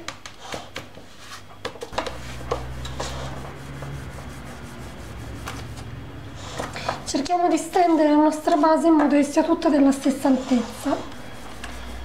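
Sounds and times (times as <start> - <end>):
low steady hum: 1.9 - 12.0.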